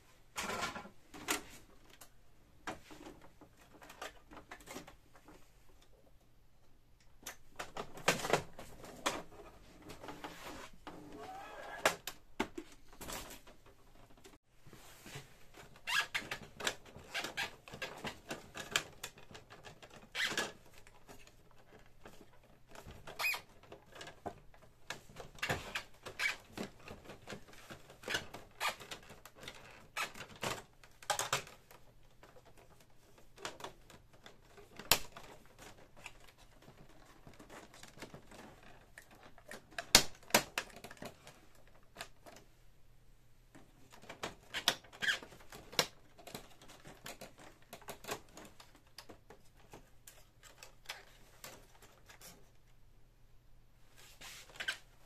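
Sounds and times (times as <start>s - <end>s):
plastic parts clicking and snapping: 15.6s - 42.5s, 43.5s - 52.6s.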